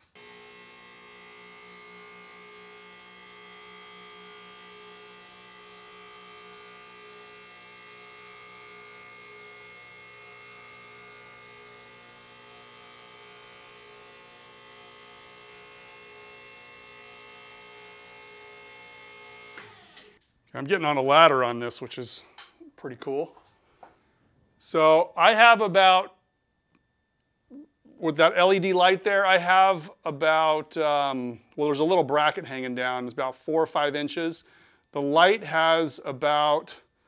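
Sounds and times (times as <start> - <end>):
hydraulic pump humming and whining: 0.0 - 20.2.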